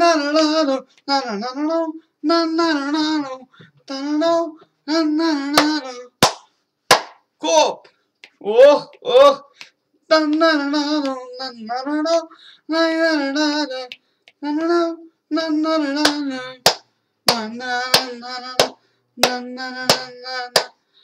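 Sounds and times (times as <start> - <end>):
man singing wordless notes: 0.0 - 6.2, 7.4 - 20.8
sharp hand claps: 5.6 - 7.3, 8.2 - 9.0, 16.0 - 20.8.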